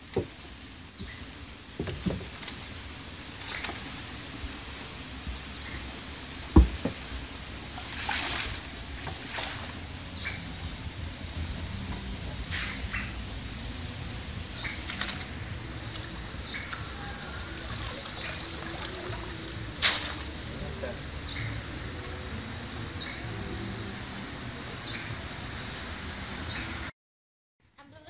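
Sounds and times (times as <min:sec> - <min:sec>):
knock on wooden boat hull: 0:06.5 - 0:07.0.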